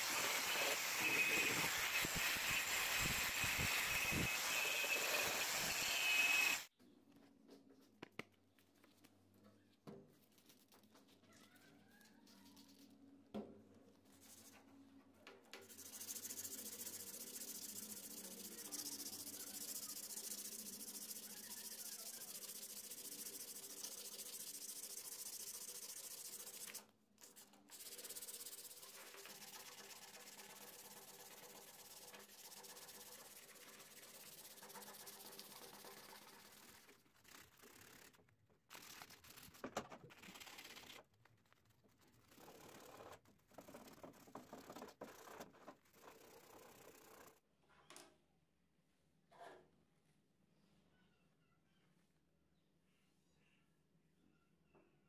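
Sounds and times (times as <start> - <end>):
sandpaper rubbing on steel: 15.7 - 41.0.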